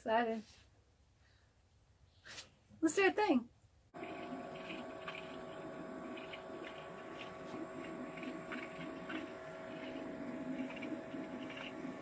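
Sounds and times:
fridge compressor whirring hum: 0:04.0 - 0:12.0
refrigerant gurgling: 0:04.0 - 0:12.0.

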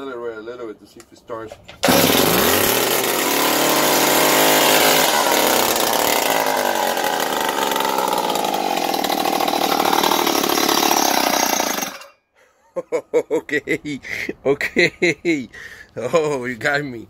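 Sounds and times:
unmuffled two-stroke saw engine: 0:01.8 - 0:12.2.

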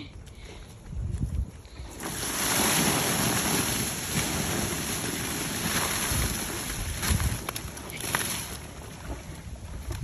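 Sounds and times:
water spray hitting plastic tarp: 0:02.0 - 0:08.5.

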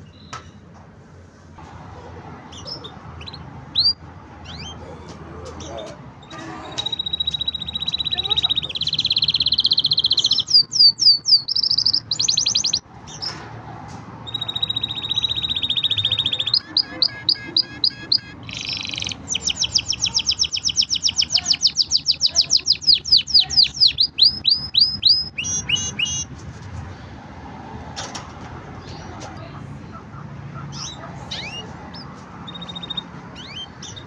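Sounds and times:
canary singing: 0:02.0 - 0:13.4, 0:14.2 - 0:26.4, 0:28.8 - 0:34.0.

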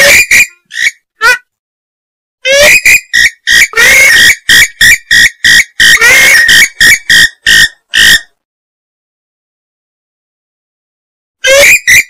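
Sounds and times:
swamphen calling: 0:02.5 - 0:08.3, 0:11.4 - 0:12.0.

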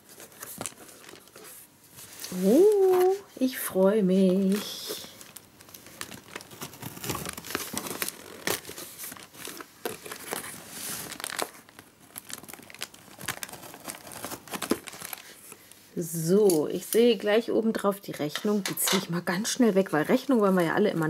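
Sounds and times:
packing tape peeling: 0:04.4 - 0:15.4.

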